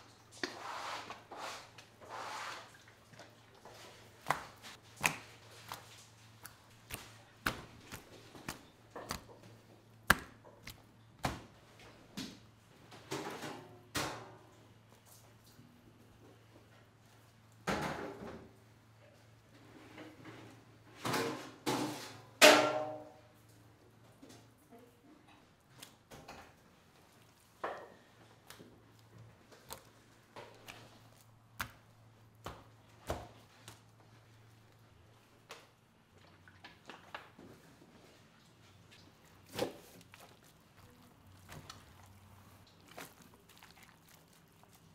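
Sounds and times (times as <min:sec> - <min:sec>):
wet fish slapping on metal tray: 0:00.4 - 0:11.5, 0:28.4 - 0:33.9, 0:39.4 - 0:44.9
wet slaps of fish fillets: 0:04.2 - 0:11.5, 0:30.5 - 0:33.8.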